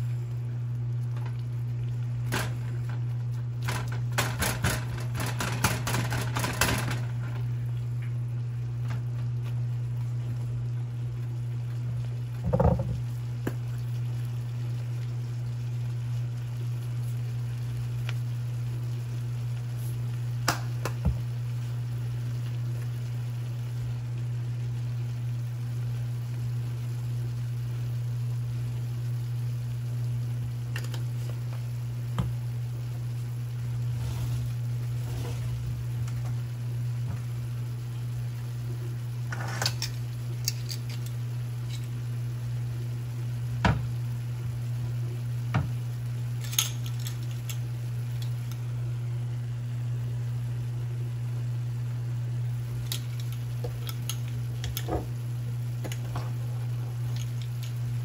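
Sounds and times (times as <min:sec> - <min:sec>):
steady low hum: 0:00.0 - 0:58.0
sharp pops and crackles: 0:20.4 - 0:21.2.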